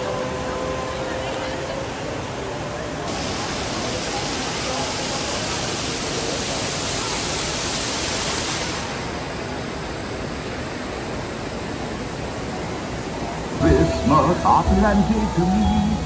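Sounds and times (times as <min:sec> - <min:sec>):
waterfall pouring into a pool: 0:03.1 - 0:12.0.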